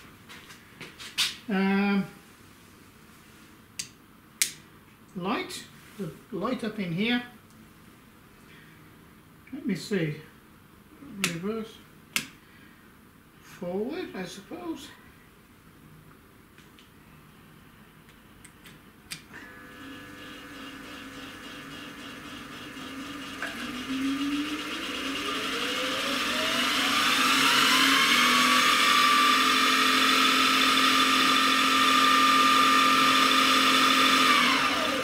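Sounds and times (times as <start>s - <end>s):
mill spindle whine: 19.3s - 35.0s.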